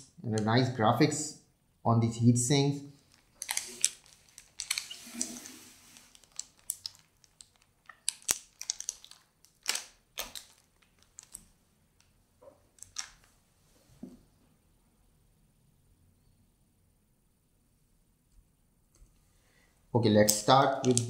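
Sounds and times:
anti-static bag crinkling: 0:03.0 - 0:11.5, 0:20.3 - 0:21.0.

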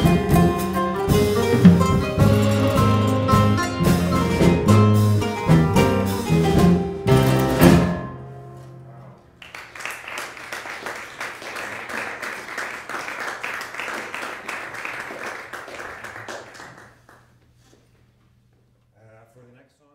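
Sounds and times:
ensemble playing final chords: 0:00.0 - 0:09.3
audience applauding: 0:09.4 - 0:17.4.

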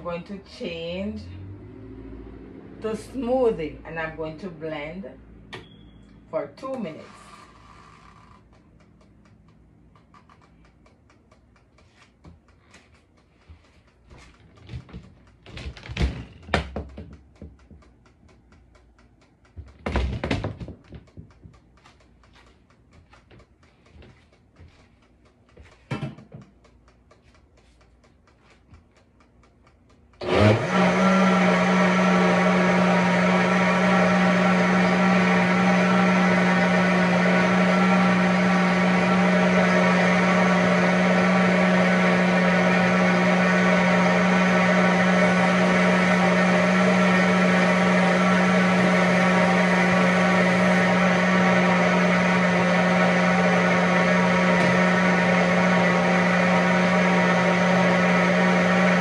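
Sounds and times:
blender motor running: 0:06.3 - 0:08.5, 0:30.2 - 0:59.0.

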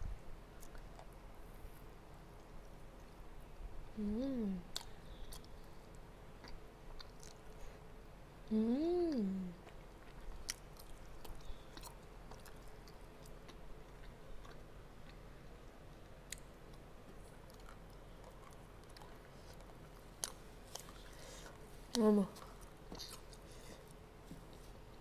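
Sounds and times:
person chewing food: 0:00.6 - 0:01.2, 0:04.7 - 0:07.8, 0:09.5 - 0:25.0.

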